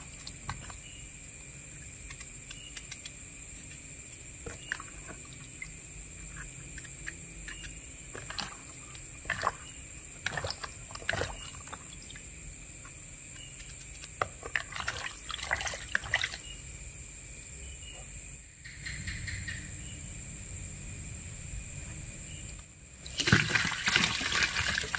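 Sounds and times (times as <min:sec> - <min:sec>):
knife cutting eggplant: 0:01.9 - 0:09.2, 0:12.9 - 0:14.5
water splashing and dripping: 0:08.1 - 0:12.4, 0:14.2 - 0:16.5, 0:23.0 - 0:24.9.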